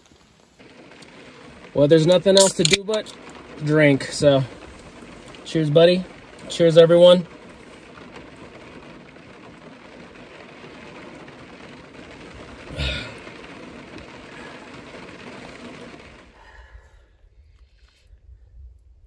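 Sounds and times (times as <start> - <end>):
rain on a truck roof: 0.0 - 18.0.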